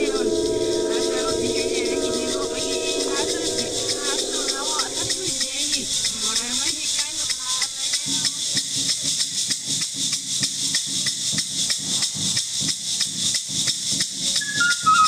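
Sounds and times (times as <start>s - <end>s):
flute melody: 0.0s - 6.7s, 14.4s - 15.0s
maracas shaking: 0.0s - 15.0s.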